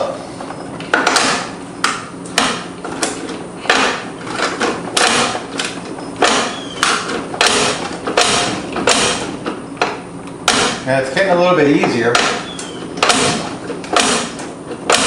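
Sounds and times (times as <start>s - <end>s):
mower lever rattling clack: 0.8s - 10.8s.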